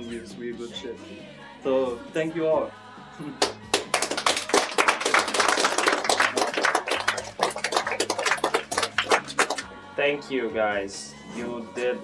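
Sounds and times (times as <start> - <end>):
people applauding: 3.4 - 9.7.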